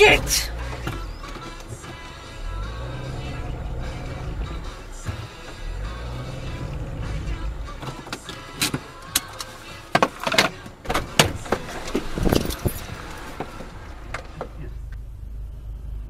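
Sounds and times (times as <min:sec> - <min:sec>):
car rumble: 0:00.0 - 0:16.0.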